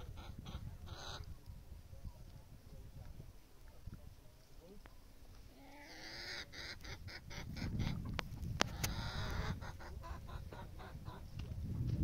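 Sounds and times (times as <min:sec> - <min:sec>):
poultry clucking: 0:00.0 - 0:01.3, 0:05.6 - 0:11.4.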